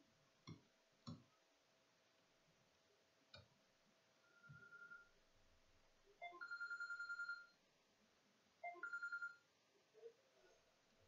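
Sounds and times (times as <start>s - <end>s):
telephone ringing with electronic trill: 4.3s - 5.1s, 6.2s - 7.6s, 8.6s - 9.5s.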